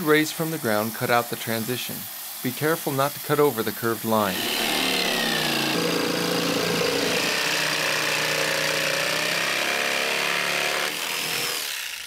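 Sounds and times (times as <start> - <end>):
electric jigsaw cutting plywood: 4.3 - 12.0.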